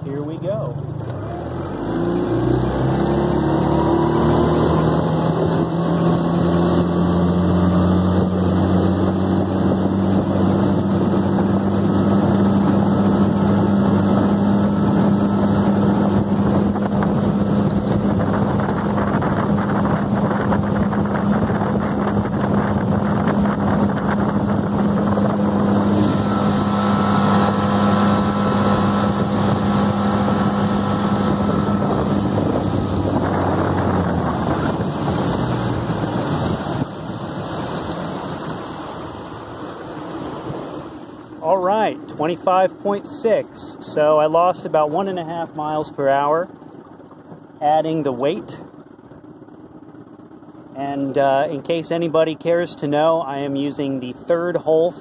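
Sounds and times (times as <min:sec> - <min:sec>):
outboard motor at full throttle: 0:00.0 - 0:55.0.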